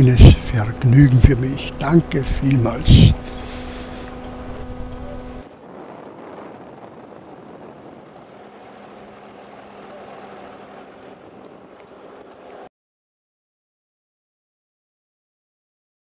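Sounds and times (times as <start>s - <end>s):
engine humming at low revs: 0.0s - 12.7s
loud engine note: 0.0s - 12.7s
rushing noise: 2.9s - 12.7s.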